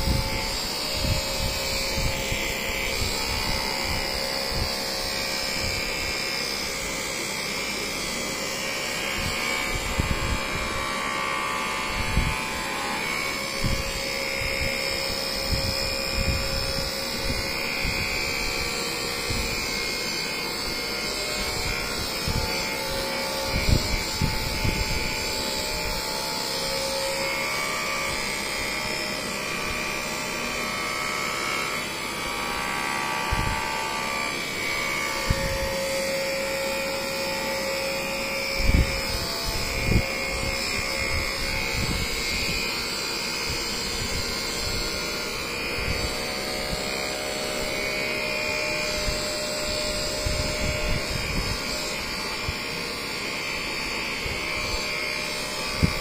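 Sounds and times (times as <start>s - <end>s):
massager motor hum: 0.0s - 56.0s.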